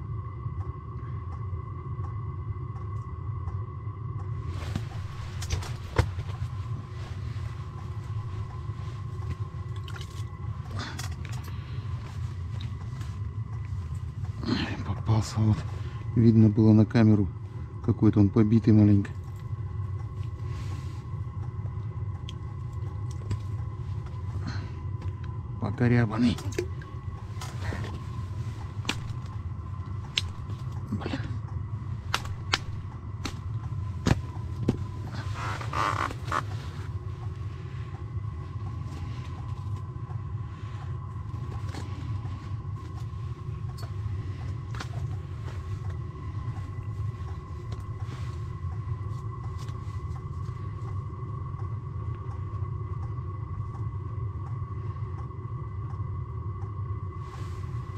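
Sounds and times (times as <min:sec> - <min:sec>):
faint steady tone: 0:00.0 - 0:57.9
steady low rumble: 0:00.0 - 0:57.9
sleeve rustling: 0:04.5 - 0:09.5, 0:32.0 - 0:37.0.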